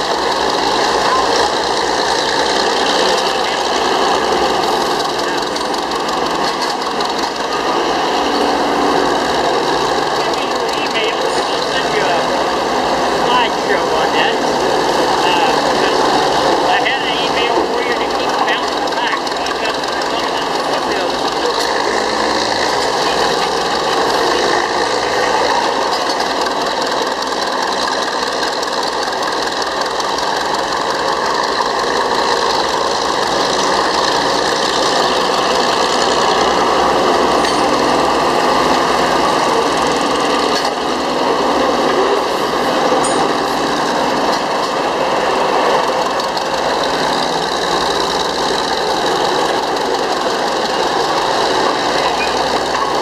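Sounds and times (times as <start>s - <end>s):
diesel engine running under load: 0.0s - 53.0s.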